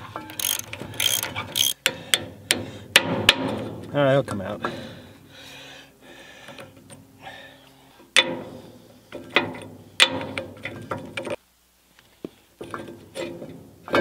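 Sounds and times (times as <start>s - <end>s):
metal clanks and knocks: 0.0s - 4.5s, 8.1s - 11.4s, 12.6s - 14.0s.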